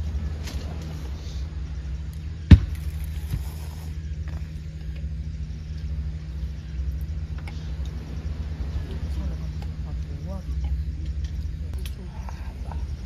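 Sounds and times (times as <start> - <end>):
low rumble: 0.0 - 13.0.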